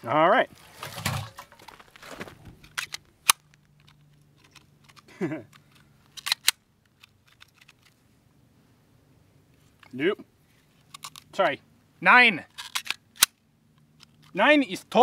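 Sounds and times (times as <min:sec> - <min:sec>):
pistol slide and trigger clicks: 0:02.7 - 0:07.9, 0:12.5 - 0:14.3.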